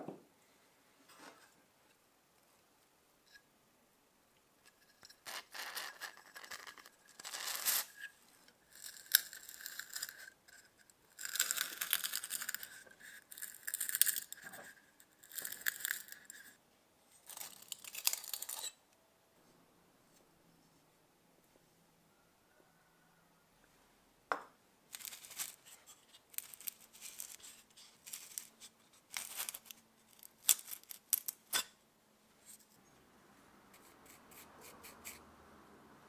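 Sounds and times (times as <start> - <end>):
metal parts grating when unscrewed: 17.2 - 18.8.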